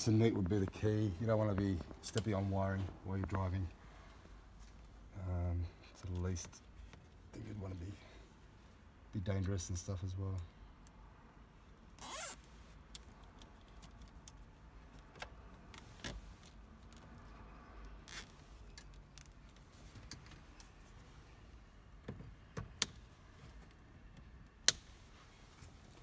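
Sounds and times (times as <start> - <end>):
wire and plastic rustling: 18.0 - 26.0.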